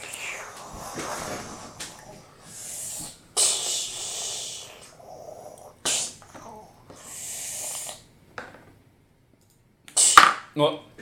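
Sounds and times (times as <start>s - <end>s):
child making hissing mouth sounds: 0.0s - 8.1s, 9.9s - 10.3s.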